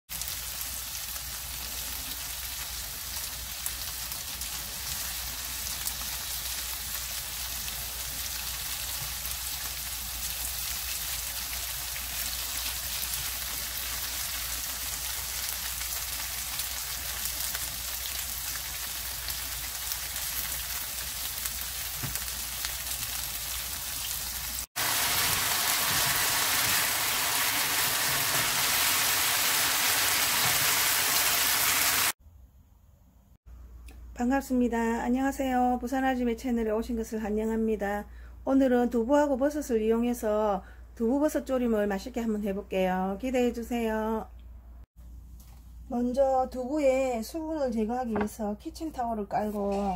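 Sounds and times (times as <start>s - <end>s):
tofu sizzling in oil: 0.1s - 32.2s.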